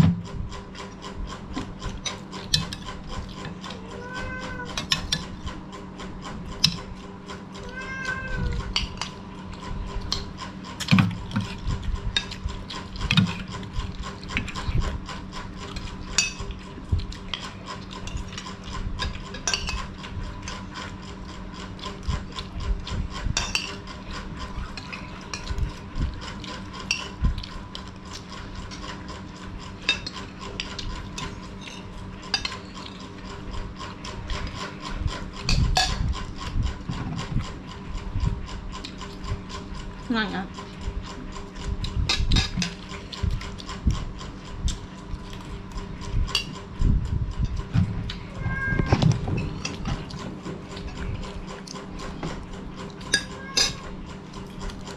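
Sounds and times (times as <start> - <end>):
electrical hum: 0.0 - 54.9
chewing: 8.5 - 46.8, 49.6 - 53.1, 54.0 - 54.9
metal spoons scraping plates: 52.9 - 54.6.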